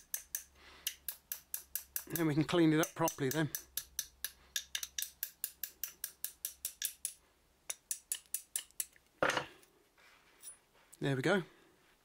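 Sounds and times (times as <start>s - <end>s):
small hammer tapping metal wrench: 0.0s - 9.0s.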